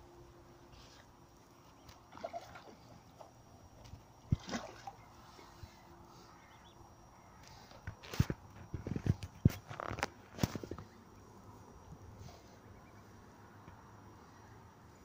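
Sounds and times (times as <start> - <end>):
fish splashing at surface: 4.3 - 5.0.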